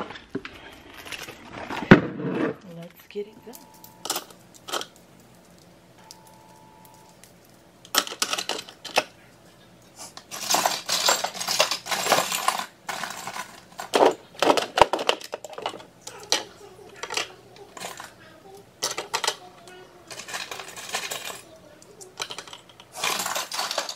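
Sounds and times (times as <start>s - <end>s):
metal jewelry clinking and jingling: 3.2s - 9.0s, 10.3s - 14.3s, 20.1s - 23.9s.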